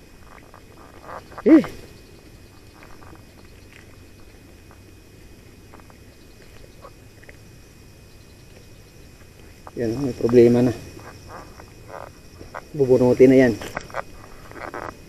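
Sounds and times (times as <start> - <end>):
faint outdoor background: 0.0 - 15.0
small ticks: 0.1 - 15.0.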